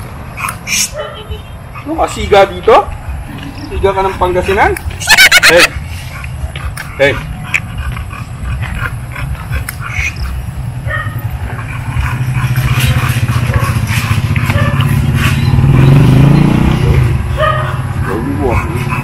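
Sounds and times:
vehicle engine running: 0:10.4 - 0:19.0.

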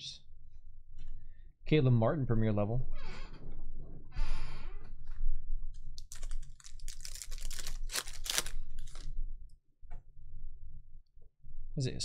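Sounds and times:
foil wrapper crinkling and tearing: 0:06.0 - 0:09.1.

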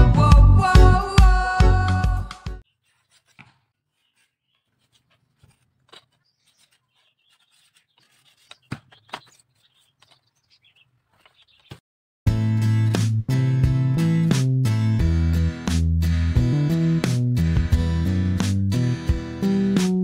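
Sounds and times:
knife scraping bamboo: 0:02.6 - 0:11.6.

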